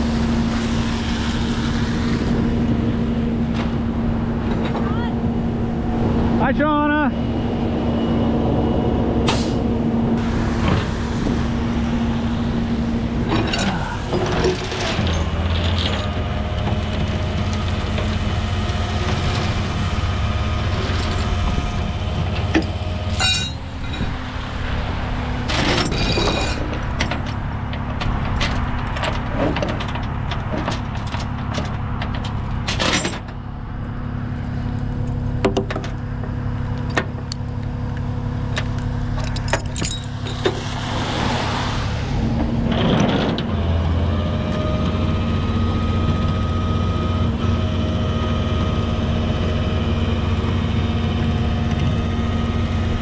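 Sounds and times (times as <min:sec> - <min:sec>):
diesel truck engine running: 0:00.0 - 0:53.0
steel chains clinking and clanking: 0:13.3 - 0:16.1, 0:22.5 - 0:24.1, 0:25.5 - 0:27.4, 0:28.0 - 0:33.4, 0:39.1 - 0:40.6.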